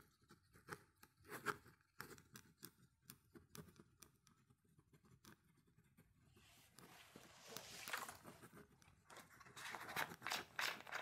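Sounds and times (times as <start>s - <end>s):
paper pages rustling: 6.5s - 11.0s.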